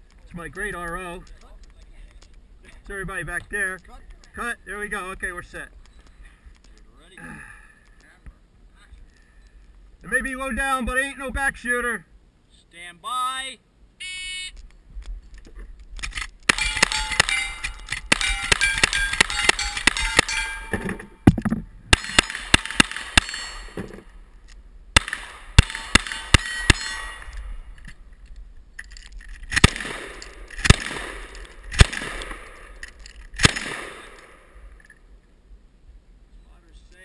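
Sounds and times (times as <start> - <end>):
shotgun blasts: 16.5 - 20.4, 21.9 - 24.0, 24.9 - 27.6, 29.5 - 32.8, 33.4 - 34.7
rifle shots: 16.5 - 21.0, 21.9 - 24.0, 24.9 - 27.6, 29.5 - 34.7
steel plates ringing: 16.5 - 21.2, 23.2 - 23.9, 25.6 - 27.6.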